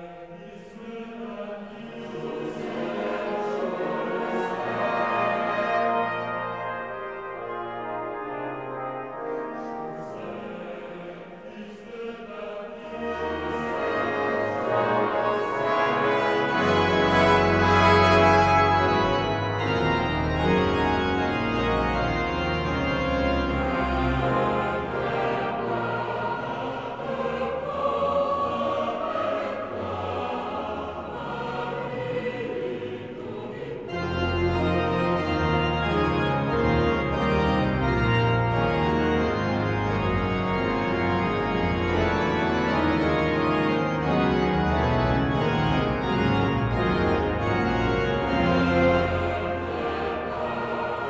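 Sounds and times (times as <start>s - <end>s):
boys' choir singing: 0.0s - 6.4s, 9.2s - 19.4s, 23.4s - 35.4s, 48.2s - 51.0s
pipe organ: 0.0s - 51.0s.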